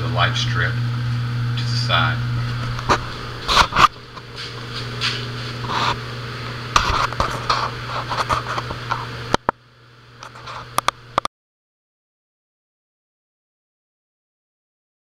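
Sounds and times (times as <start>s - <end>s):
steady low hum: 0.0s - 11.3s
camera handling scratching: 2.6s - 6.0s, 6.8s - 9.1s.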